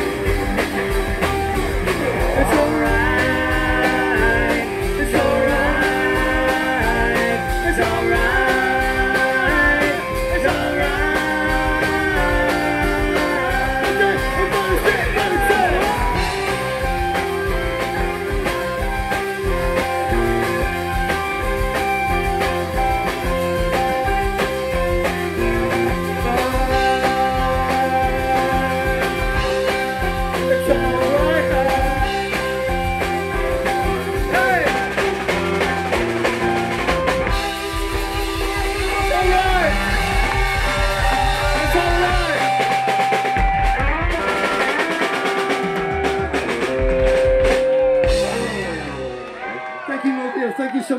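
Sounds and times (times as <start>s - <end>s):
drum kit: 0.0s - 49.9s
electric guitars: 0.0s - 50.5s
person singing: 2.1s - 17.0s, 25.4s - 32.8s.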